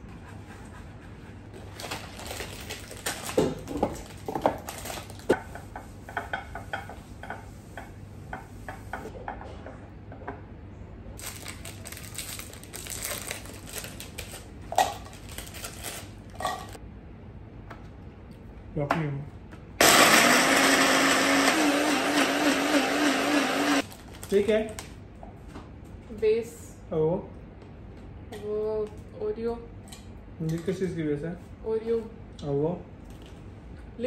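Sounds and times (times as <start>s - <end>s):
plastic packet crinkling: 1.7s - 5.3s, 11.2s - 16.8s, 23.8s - 24.9s.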